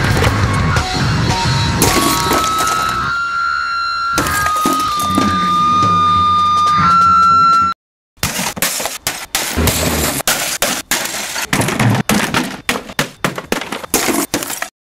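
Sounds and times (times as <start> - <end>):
sledgehammer smashing monitor and furniture: 1.8 - 3.0, 9.4 - 14.7.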